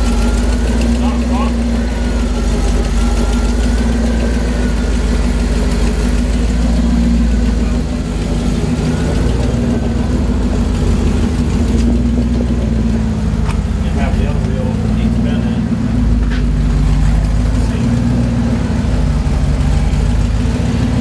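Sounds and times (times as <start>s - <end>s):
faint wavering whine: 0.0s - 13.4s
drivetrain hum: 0.0s - 21.0s.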